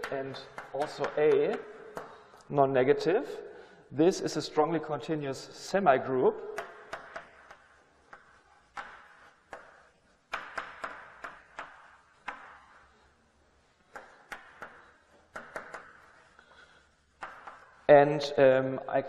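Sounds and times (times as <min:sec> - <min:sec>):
chalk tapping on blackboard: 0:00.0 - 0:02.5, 0:06.5 - 0:17.9
chalk scratching strokes: 0:06.7 - 0:18.2.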